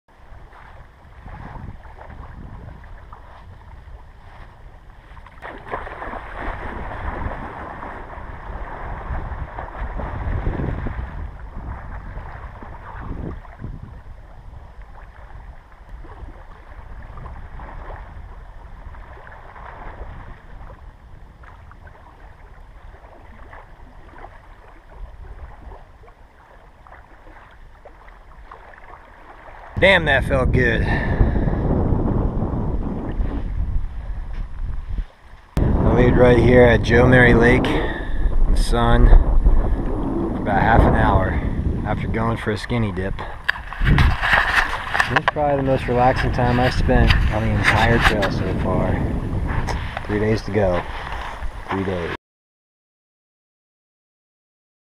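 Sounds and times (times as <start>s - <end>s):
lake water splashing: 0.1s - 52.2s
wind buffeting microphone: 0.1s - 52.2s
small waves lapping on shore: 0.2s - 31.8s, 41.4s - 52.1s.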